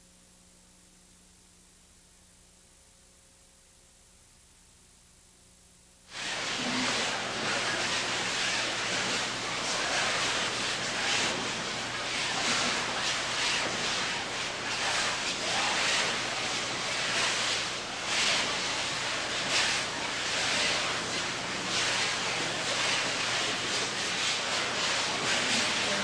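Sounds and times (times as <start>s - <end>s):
rushing hiss: 6.1s - 10.2s.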